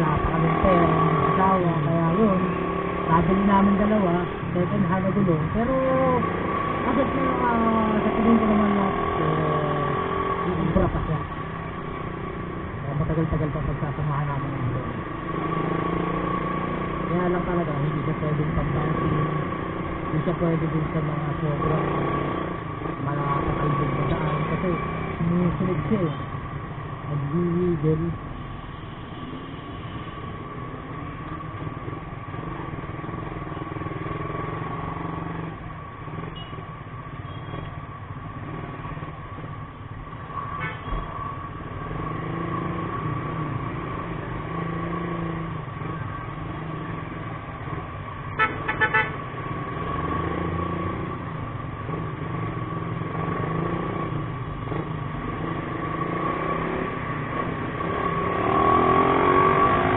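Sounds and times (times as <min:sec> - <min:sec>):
vehicle horn beeping: 0:36.3 - 0:36.6, 0:40.6 - 0:41.0, 0:48.4 - 0:49.2.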